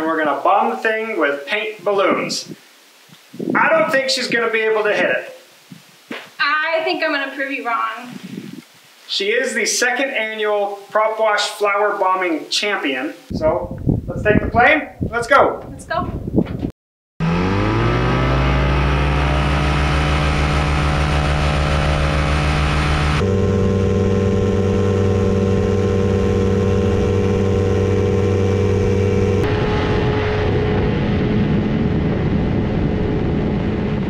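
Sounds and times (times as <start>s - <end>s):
light aircraft engine buzzing: 17.2s - 34.0s
rushing noise: 17.2s - 34.0s.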